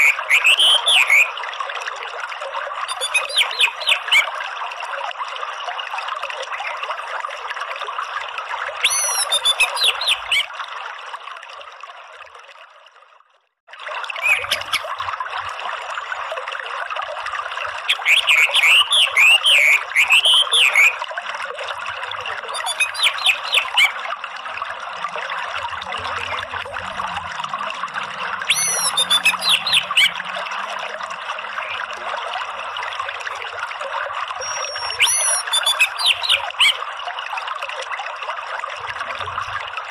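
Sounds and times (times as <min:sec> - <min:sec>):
stream water flowing: 0:00.0 - 0:39.9
bird twittering and warbling: 0:02.8 - 0:04.3, 0:08.8 - 0:10.5, 0:14.2 - 0:15.0, 0:17.9 - 0:20.9, 0:22.4 - 0:24.0, 0:28.2 - 0:30.7, 0:31.5 - 0:31.9, 0:34.4 - 0:36.8.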